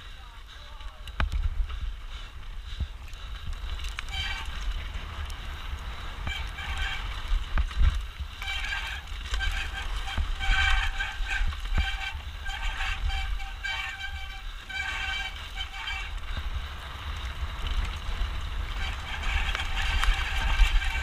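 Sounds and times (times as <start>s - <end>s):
tyres on trail: 0.0s - 21.0s
wind on microphone: 1.0s - 21.0s
bike disc brakes squealing: 5.9s - 7.5s, 8.4s - 16.4s, 18.7s - 21.0s.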